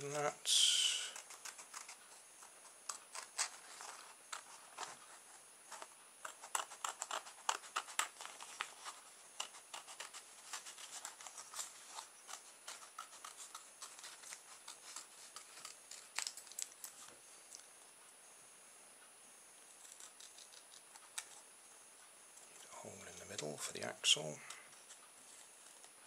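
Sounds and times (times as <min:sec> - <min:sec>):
scissors snipping cardboard: 0:05.8 - 0:16.6.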